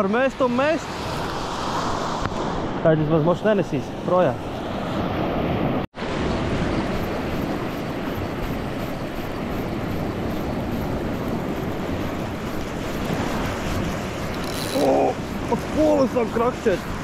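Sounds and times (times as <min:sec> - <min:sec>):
wind on microphone: 0:00.6 - 0:17.0
surf breaking on beach: 0:04.2 - 0:17.0.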